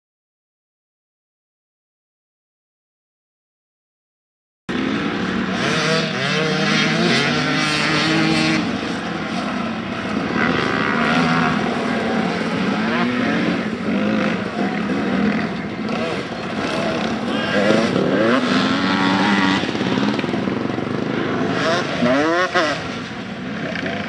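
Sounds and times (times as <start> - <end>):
dirt bike engine revving: 4.7 - 24.0.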